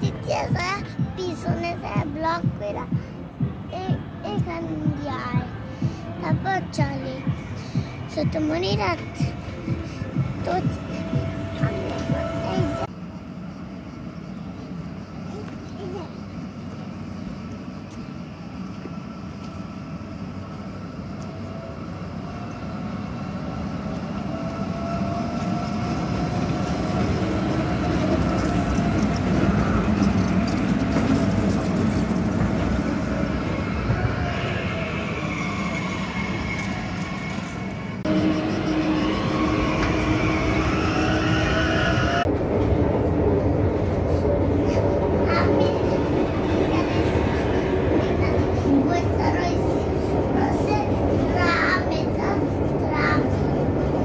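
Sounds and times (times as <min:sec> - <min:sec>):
tram rumble and motor whine: 0:00.0 - 0:54.0.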